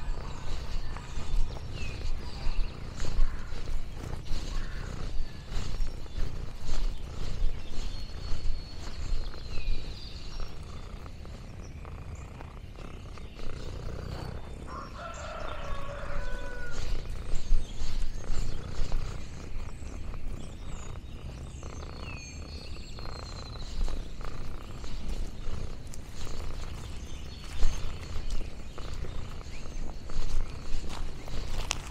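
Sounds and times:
small bird singing: 0.0s - 31.9s
chicken calling: 14.6s - 17.1s.

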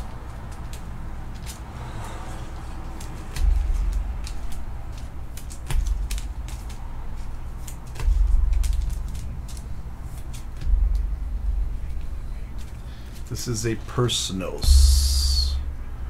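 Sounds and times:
cards and packaging rustling: 0.0s - 14.8s
low rumbling thumps: 3.4s - 5.0s, 10.6s - 13.0s, 14.6s - 16.0s.

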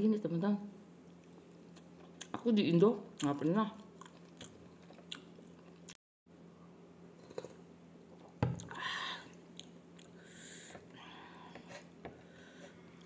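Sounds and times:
person chewing rice: 3.2s - 6.0s, 9.5s - 10.2s.

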